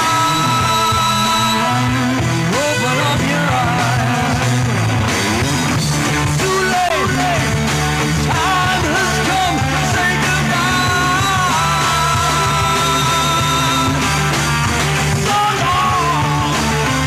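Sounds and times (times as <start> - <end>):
man singing: 0.0 - 4.6, 6.1 - 7.6, 8.2 - 14.0, 15.2 - 16.7
rock band playing: 0.0 - 17.0.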